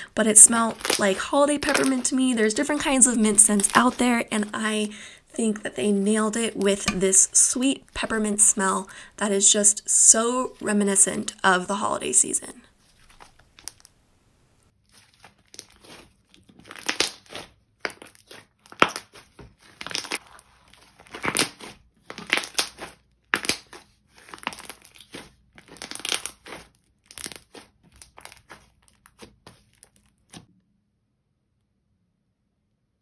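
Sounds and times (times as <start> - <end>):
slime crackling and tearing: 0.7 - 1.0, 14.9 - 30.4.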